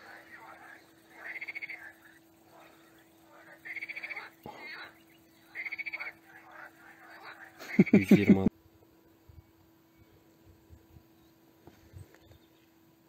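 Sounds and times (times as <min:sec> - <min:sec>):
frogs croaking: 0:00.0 - 0:08.5
faint steady hum: 0:00.0 - 0:13.0.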